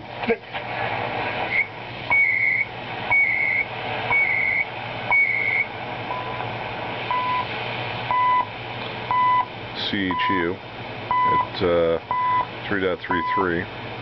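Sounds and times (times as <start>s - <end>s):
static hiss: 0.0s - 14.0s
radio time signal beeps: 2.1s - 6.4s, 7.1s - 7.5s, 8.1s - 8.5s, 9.1s - 9.5s, 11.1s - 11.5s, 12.1s - 12.5s, 13.1s - 13.5s.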